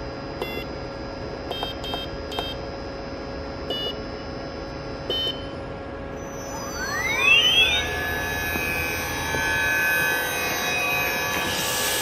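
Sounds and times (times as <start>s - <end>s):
steady machine hum: 0.0s - 12.0s
high electronic beeps: 3.7s - 4.0s, 5.1s - 5.5s, 6.1s - 12.0s.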